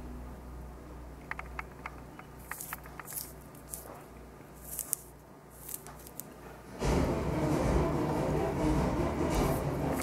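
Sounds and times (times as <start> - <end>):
low steady hum: 0.0 - 10.0
peel tearing: 2.4 - 6.4.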